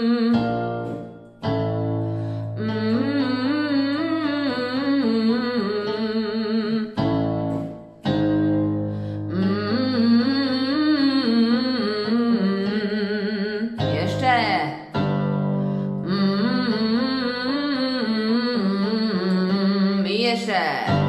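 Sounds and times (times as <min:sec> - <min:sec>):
piano chord: 0:00.0 - 0:10.9, 0:13.8 - 0:17.2.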